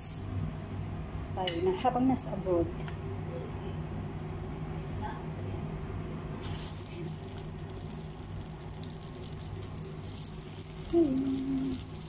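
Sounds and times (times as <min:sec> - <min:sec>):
oil sizzling and hissing: 0:06.4 - 0:12.0.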